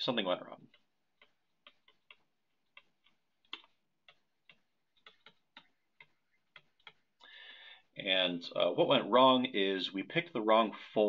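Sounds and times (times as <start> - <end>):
stylus tapping on touchscreen: 0.4 - 7.3.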